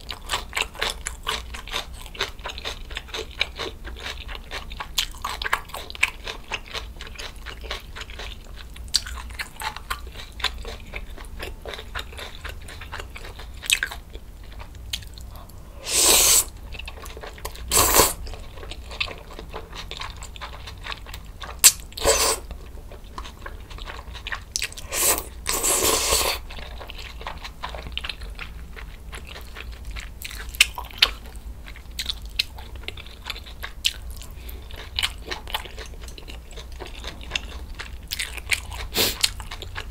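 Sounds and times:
chewing with crunches: 0:00.0 - 0:39.9
slurping noodles: 0:15.8 - 0:16.5, 0:17.7 - 0:18.2, 0:22.0 - 0:22.5, 0:24.8 - 0:26.4.

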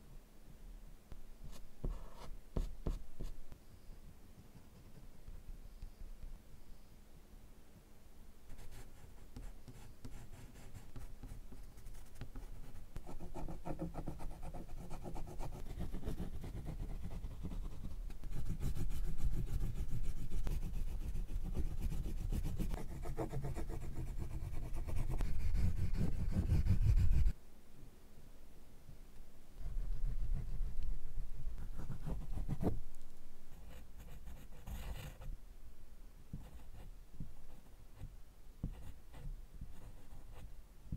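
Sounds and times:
oil pastel scratching on paper: 0:08.5 - 0:27.4, 0:31.6 - 0:32.7.

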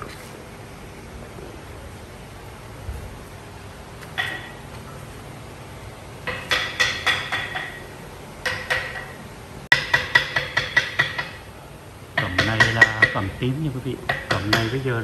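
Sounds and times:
hammer tapping on metal: 0:04.0 - 0:04.8, 0:06.2 - 0:15.0.

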